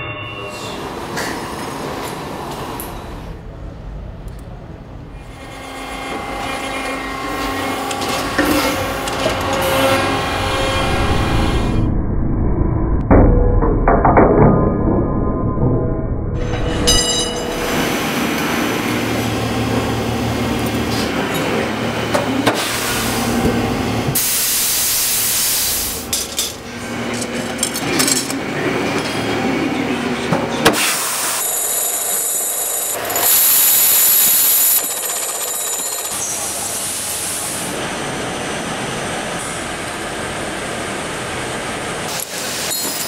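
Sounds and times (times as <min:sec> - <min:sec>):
machine running and hissing: 0:17.6 - 0:26.2, 0:36.3 - 0:43.0.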